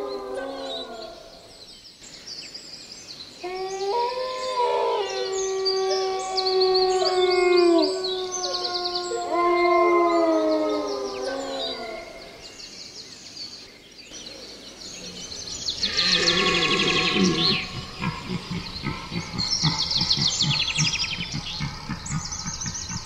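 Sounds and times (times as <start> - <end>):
dogs howling: 3.4 - 12.4, 15.9 - 23.0
small birds trilling: 10.3 - 23.0.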